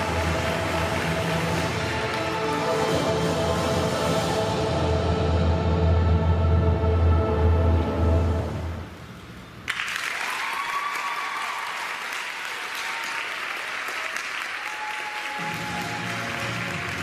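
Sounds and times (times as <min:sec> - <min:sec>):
audience applause: 0:00.0 - 0:02.3, 0:09.7 - 0:17.0
music: 0:00.0 - 0:08.9, 0:15.3 - 0:17.0.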